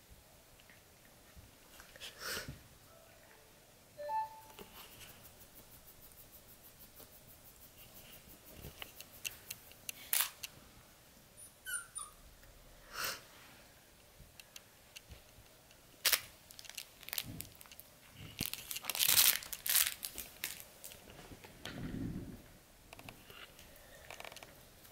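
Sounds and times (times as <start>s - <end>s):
toy squeak: 11.4s - 12.2s.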